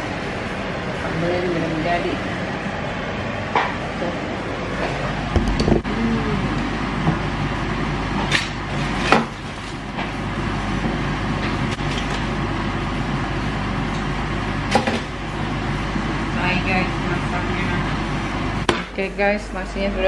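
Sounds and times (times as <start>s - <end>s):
steady background noise: 0.0s - 20.0s.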